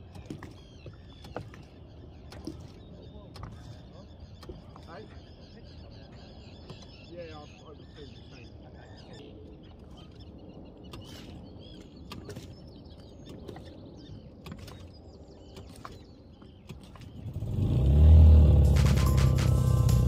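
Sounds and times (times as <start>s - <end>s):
faint bird chirps: 0.2s - 17.4s
outboard motor revving and running: 16.8s - 20.0s.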